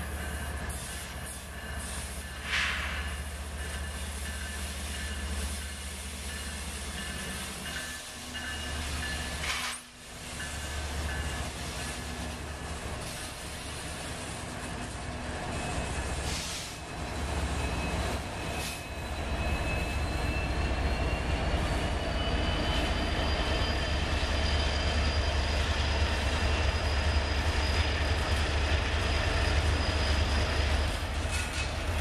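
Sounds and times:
diesel locomotives rumbling: 0:00.0 - 0:32.0
freight cars rolling on rails: 0:00.0 - 0:32.0
high wheel squeal whine: 0:16.8 - 0:31.8.

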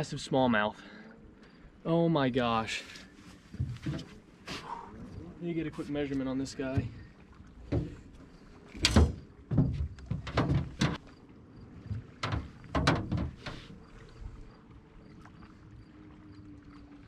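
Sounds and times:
knocks and thumps on boat deck: 0:03.5 - 0:04.2, 0:06.5 - 0:11.1, 0:11.7 - 0:13.8.

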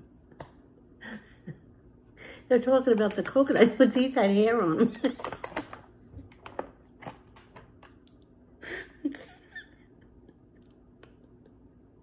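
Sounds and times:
woman's stifled laughter: 0:08.6 - 0:10.2.

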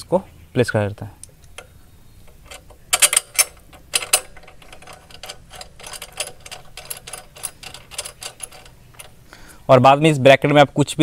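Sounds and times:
metal bracket clicking on tube: 0:01.2 - 0:09.2.

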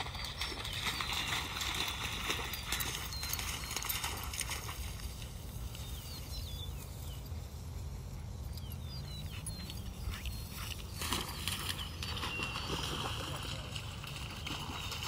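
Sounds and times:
faint bird chirps: 0:00.0 - 0:04.3, 0:08.5 - 0:13.8.

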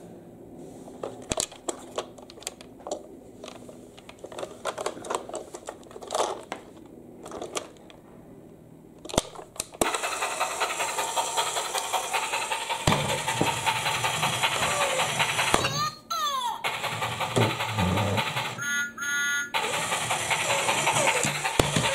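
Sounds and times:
plastic toy clicks and knocks: 0:19.6 - 0:21.9.

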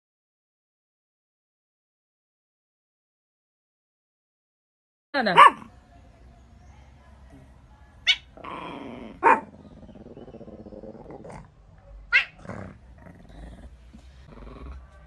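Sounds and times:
cat growling: 0:08.3 - 0:15.0.

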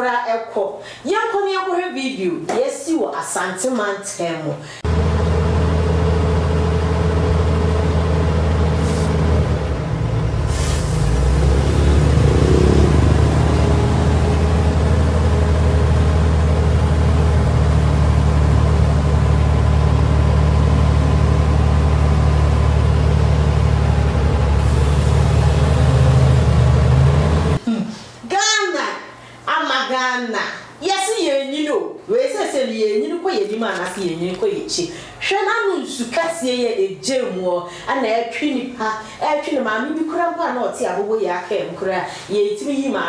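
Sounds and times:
vehicle engine humming: 0:04.8 - 0:27.6.

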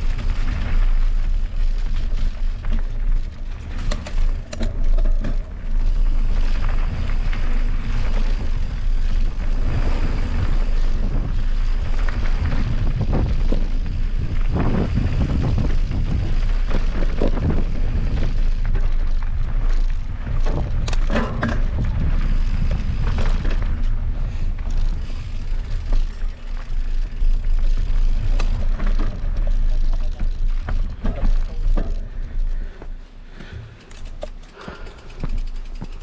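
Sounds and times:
wind buffeting microphone: 0:00.0 - 0:32.8
bike knocks and rattles: 0:00.0 - 0:36.0.

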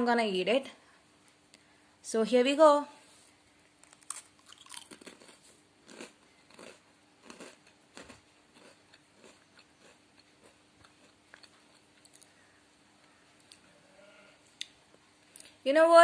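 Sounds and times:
chewing crunches: 0:03.8 - 0:13.7.

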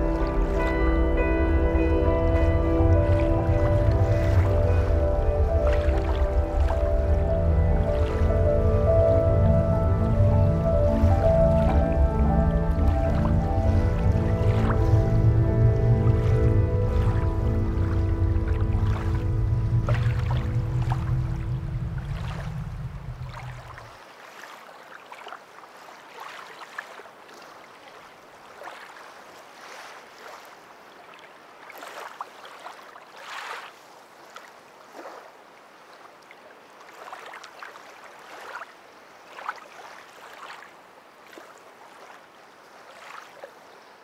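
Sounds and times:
background music: 0:00.0 - 0:23.5
waves lapping at shore: 0:00.0 - 0:44.0.

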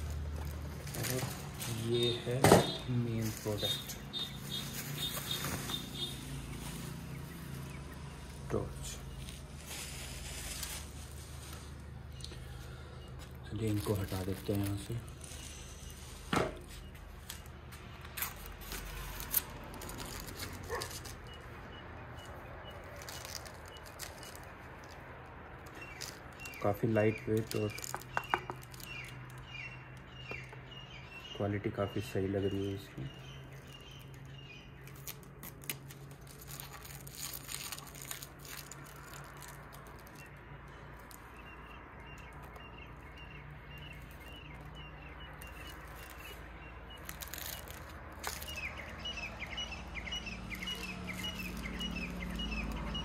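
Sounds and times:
packaging crinkling and rustling: 0:00.0 - 0:07.6, 0:13.2 - 0:21.6, 0:22.2 - 0:30.5, 0:33.6 - 0:41.6, 0:43.8 - 0:49.1
dog barking: 0:20.7 - 0:21.0.

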